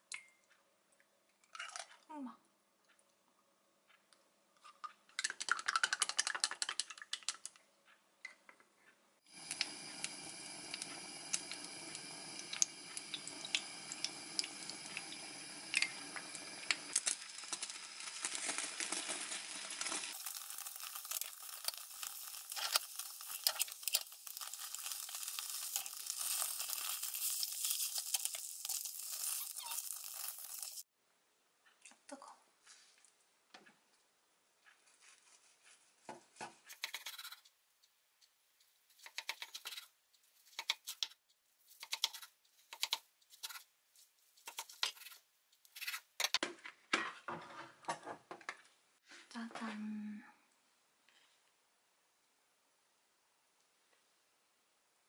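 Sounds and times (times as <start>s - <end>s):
egg sizzling in a pan: 9.3s - 30.9s, 41.7s - 46.4s.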